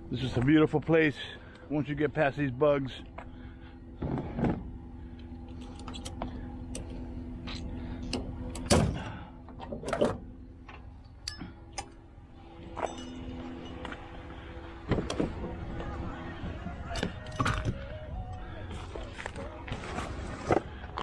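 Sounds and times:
gear knocking and clunking: 12.7 - 17.9.

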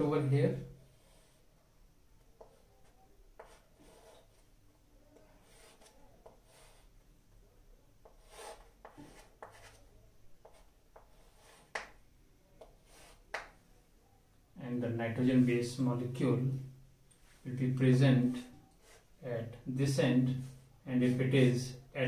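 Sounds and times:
chalk scraping on chalkboard: 0.9 - 1.4, 3.4 - 4.4, 5.2 - 7.0, 8.0 - 9.8, 10.4 - 12.0, 12.6 - 13.6, 18.7 - 19.1.

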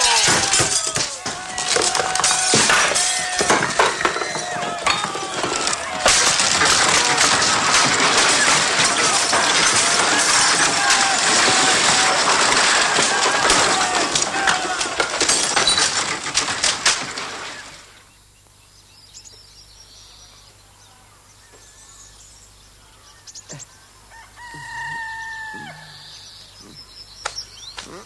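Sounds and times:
chickens squawking: 23.7 - 27.0
chicken steady held call: 24.0 - 26.8.

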